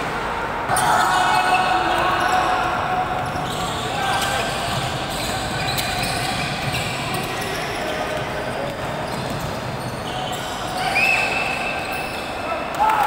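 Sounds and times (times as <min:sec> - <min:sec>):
voices echoing in gym: 0:00.0 - 0:13.0.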